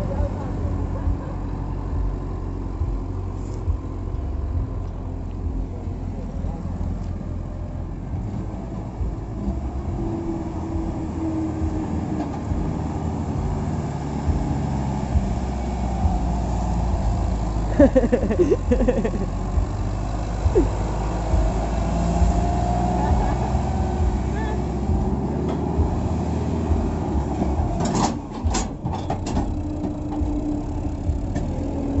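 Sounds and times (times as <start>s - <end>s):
tractor diesel engine rumbling: 0.0s - 32.0s
trolleys rolling: 6.1s - 32.0s
steady hum: 7.9s - 26.0s
knocks and rattles: 26.7s - 32.0s.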